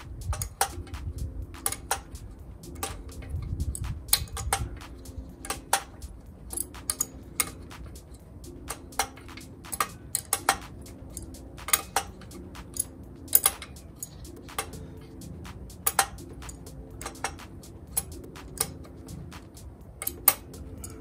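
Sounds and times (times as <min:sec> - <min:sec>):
wrench clicking on metal: 0:00.0 - 0:21.0.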